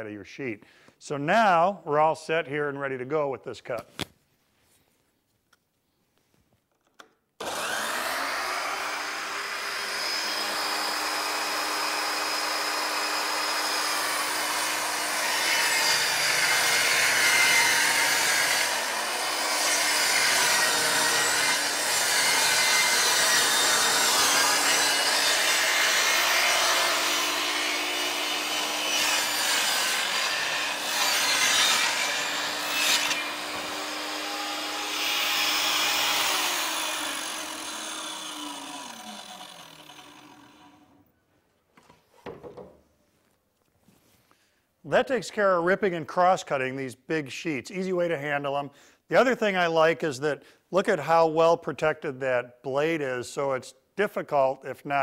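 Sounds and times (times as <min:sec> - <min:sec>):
panel saw cutting plywood: 0:07.4 - 0:41.0.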